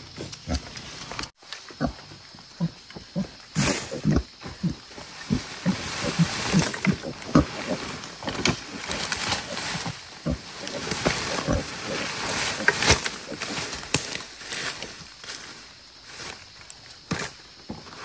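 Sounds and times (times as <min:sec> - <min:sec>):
dry leaves rustling and crackling: 0:04.8 - 0:17.0
small sticks snapping: 0:12.7 - 0:14.2.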